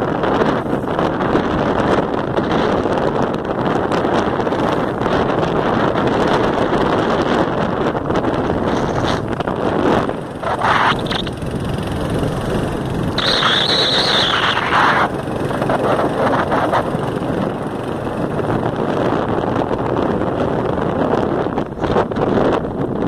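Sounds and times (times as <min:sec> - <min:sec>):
road and engine noise: 0:00.0 - 0:23.0
wind on microphone: 0:00.0 - 0:23.0
high-pitched sound: 0:13.1 - 0:15.1.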